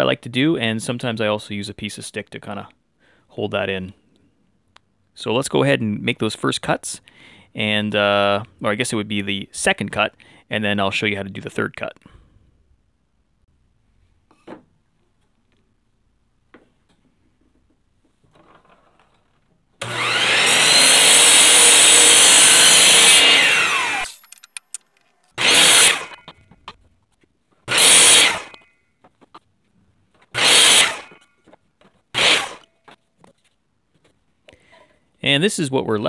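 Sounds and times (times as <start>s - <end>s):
miter saw cutting board: 19.8s - 24.1s, 25.4s - 26.3s, 27.7s - 28.7s, 30.3s - 31.3s, 32.1s - 32.7s.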